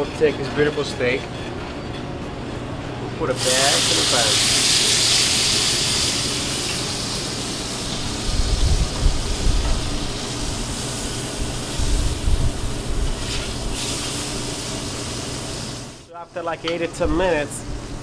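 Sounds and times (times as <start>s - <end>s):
steak sizzling in hot pan: 3.4s - 16.0s.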